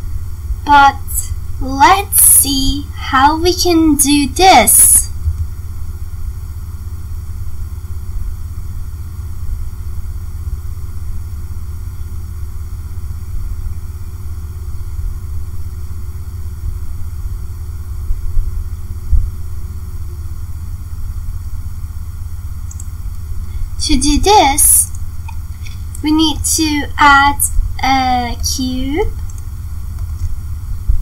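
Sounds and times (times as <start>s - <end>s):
faint hum: 0.0s - 31.0s
low background rumble: 0.0s - 31.0s.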